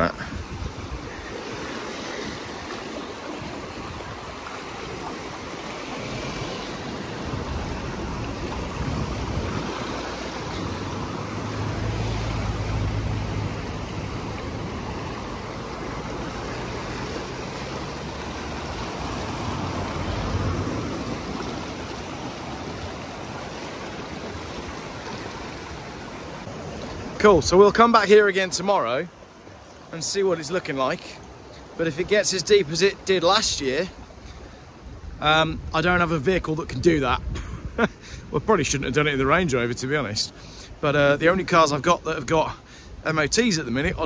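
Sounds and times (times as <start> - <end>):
wind rumble on microphone: 0.0 - 27.5, 34.7 - 39.5
river rushing: 0.0 - 37.1.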